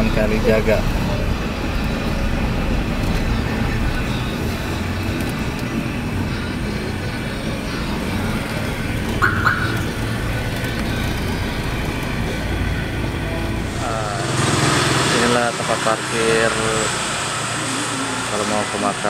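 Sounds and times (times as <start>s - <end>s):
car cabin engine and road rumble: 0.0s - 13.8s.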